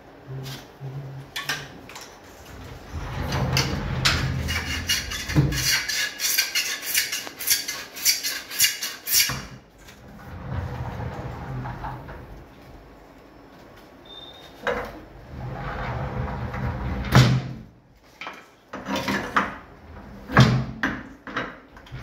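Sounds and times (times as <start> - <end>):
sliding doors rolling on metal track: 2.3 - 6.3, 9.9 - 12.9, 15.2 - 17.6, 18.9 - 20.7.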